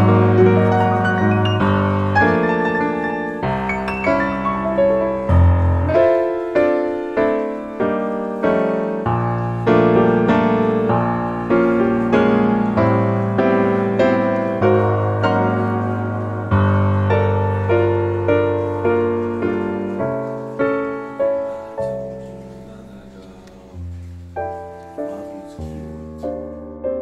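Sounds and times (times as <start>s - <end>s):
gentle piano melody: 0.0s - 27.0s.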